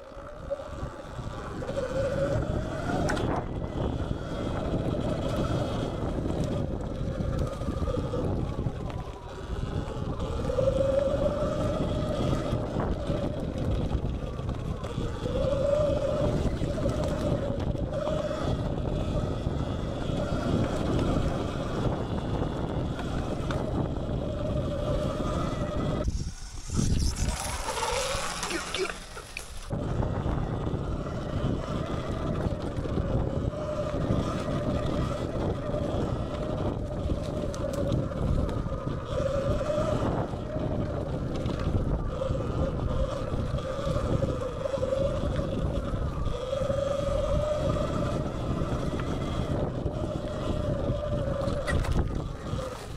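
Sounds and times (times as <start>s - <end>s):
electric motor whine: 0.0s - 52.9s
tyres on dirt: 0.0s - 52.9s
wind rumble on microphone: 0.0s - 52.9s.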